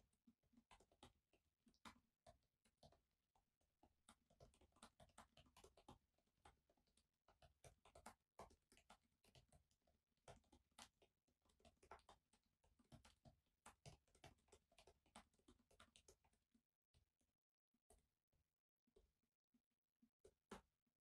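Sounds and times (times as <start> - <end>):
laptop keys tapping: 0.0 - 16.6, 20.2 - 20.7.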